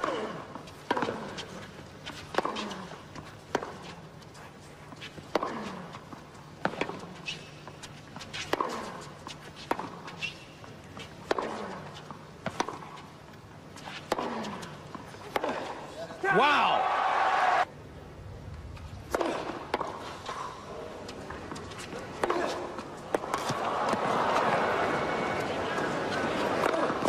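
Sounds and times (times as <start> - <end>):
racquets striking tennis ball: 0.0 - 4.0, 4.9 - 15.9, 19.1 - 20.4, 21.1 - 24.7, 25.4 - 27.0.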